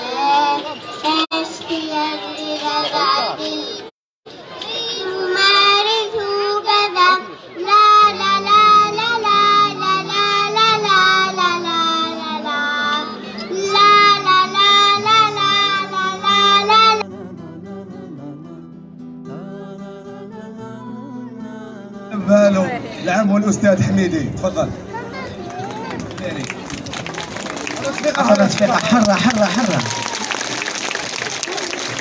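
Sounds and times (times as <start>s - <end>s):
children singing in unison: 4.6s - 17.0s
backing music over loudspeakers: 22.1s - 30.1s.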